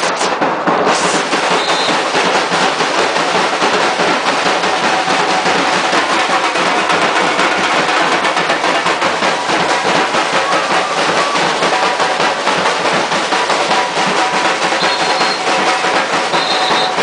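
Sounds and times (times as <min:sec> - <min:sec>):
bass drums: 0:00.0 - 0:17.0
snare drums: 0:00.0 - 0:17.0.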